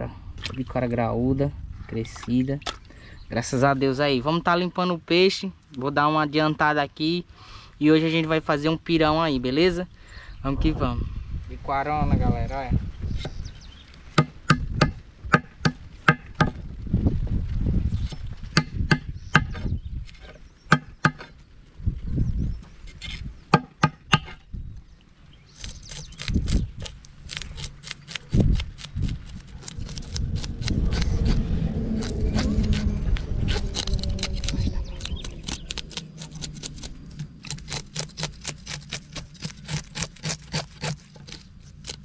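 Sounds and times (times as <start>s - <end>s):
wind rumbling on microphone: 0.0s - 4.6s, 8.2s - 40.0s
knife scraping fish scales: 25.6s - 31.4s, 32.0s - 42.0s.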